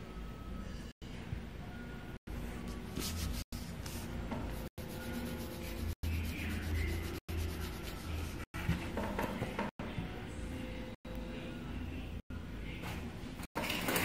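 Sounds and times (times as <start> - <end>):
pencil scratching on paper: 4.6 - 8.5.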